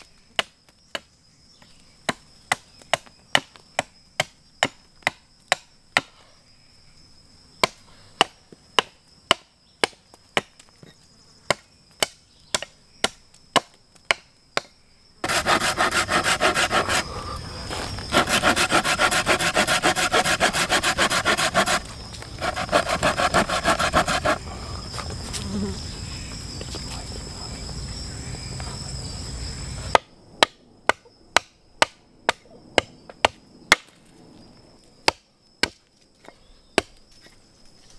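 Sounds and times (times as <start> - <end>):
hatchet chopping wood: 0.4 - 1.1, 2.0 - 6.2, 7.6 - 10.7, 11.5 - 17.0, 18.1 - 24.4, 29.9 - 34.0, 35.0 - 37.0
hand saw cutting log: 15.2 - 17.2, 18.1 - 24.4.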